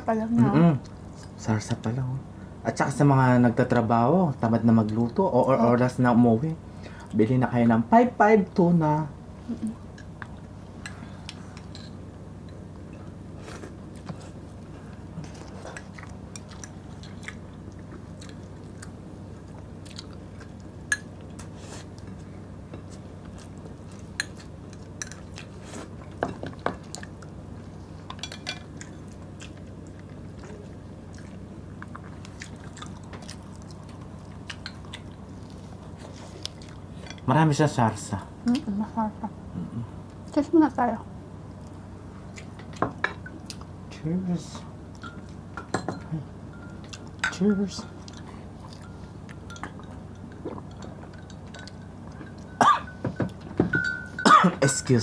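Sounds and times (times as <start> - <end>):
chewing food: 11.2 - 37.3, 46.6 - 47.3, 47.9 - 52.6
spoons clinking on glass bowls: 48.8 - 55.0.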